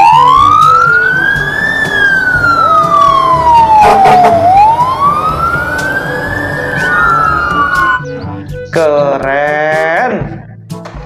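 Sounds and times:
fire engine siren wailing: 0:00.0 - 0:08.2.

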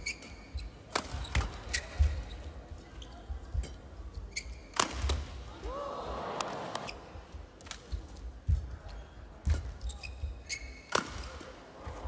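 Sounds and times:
court shoes squeaking: 0:00.0 - 0:05.3, 0:06.5 - 0:12.0
racket striking shuttlecock: 0:00.9 - 0:02.2, 0:04.7 - 0:05.3, 0:10.9 - 0:11.5.

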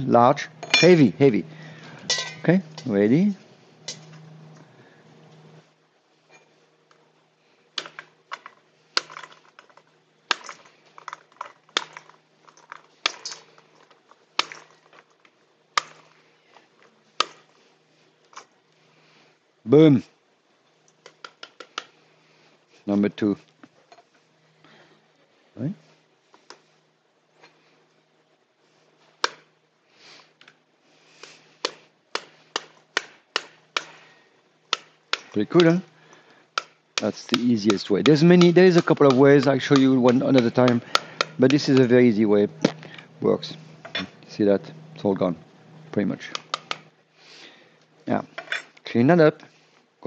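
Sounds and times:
metal spoon whacking pomegranate: 0:00.6 - 0:01.1, 0:36.6 - 0:42.8.

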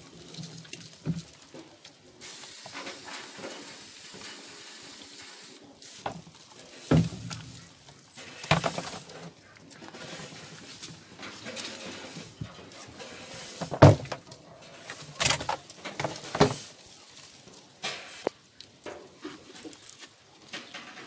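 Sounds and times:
steady hissing rustle: 0:00.0 - 0:21.0
plastic containers knocking: 0:08.4 - 0:09.0.

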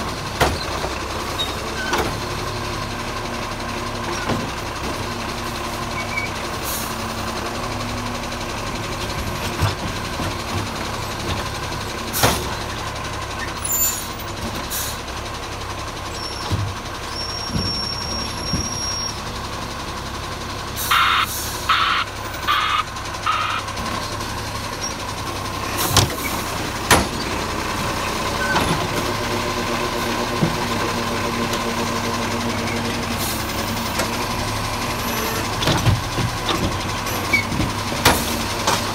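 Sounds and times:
garbage truck engine hum: 0:00.0 - 0:38.9
beeps: 0:20.9 - 0:23.6
constant high tone: 0:20.9 - 0:23.7.

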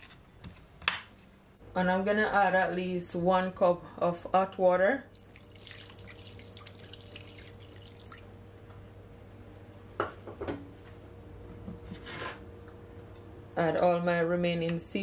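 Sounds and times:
water pouring and splashing: 0:05.1 - 0:08.4.

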